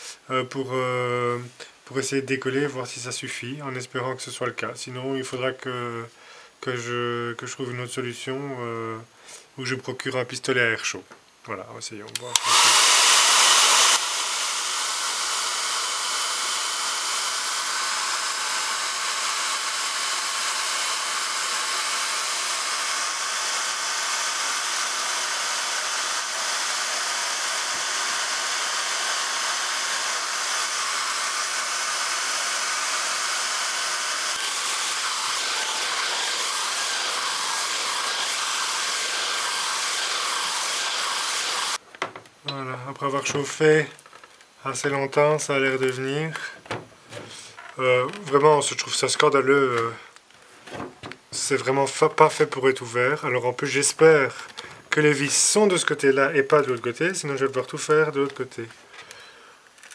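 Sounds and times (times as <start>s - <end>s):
hair dryer blowing air: 12.2s - 41.8s.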